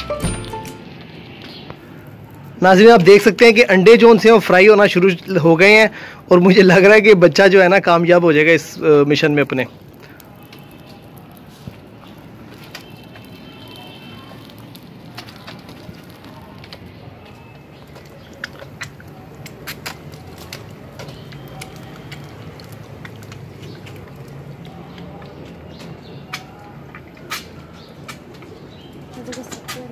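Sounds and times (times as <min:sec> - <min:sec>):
fire crackling: 0:00.0 - 0:29.9
low rush of flame: 0:01.0 - 0:03.5, 0:09.6 - 0:13.5, 0:14.3 - 0:24.6
sharp pops and snaps: 0:08.7 - 0:29.9.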